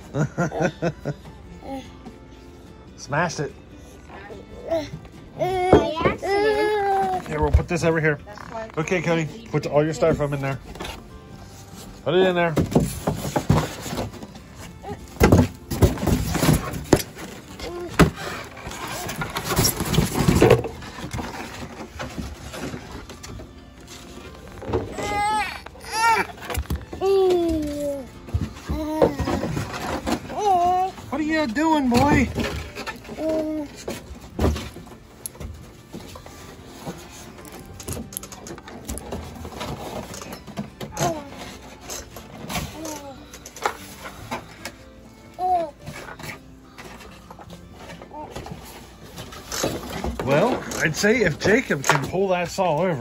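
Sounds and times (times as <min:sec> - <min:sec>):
child's voice: 0:04.6 - 0:07.2, 0:27.0 - 0:28.1.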